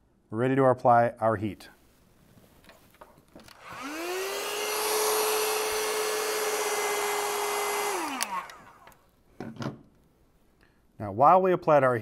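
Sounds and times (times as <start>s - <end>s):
heat gun fan whine: 3.4s - 9.1s.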